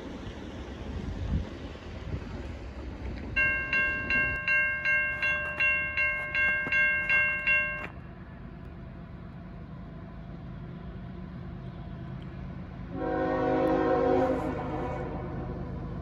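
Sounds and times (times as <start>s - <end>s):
crossing warning bell ringing: 3.4s - 8.6s.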